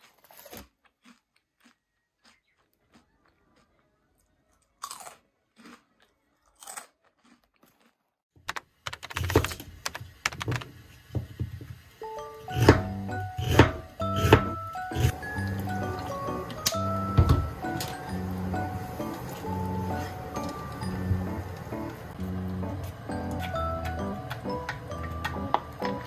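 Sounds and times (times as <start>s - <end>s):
crunchy snack being chewed: 0.0s - 8.2s
background music: 12.0s - 26.0s
knife chopping on cutting board: 12.6s - 15.1s.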